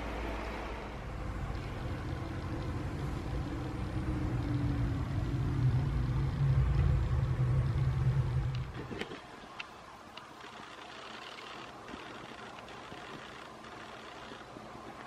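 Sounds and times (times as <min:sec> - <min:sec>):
low mechanical rumble: 0:00.0 - 0:09.6.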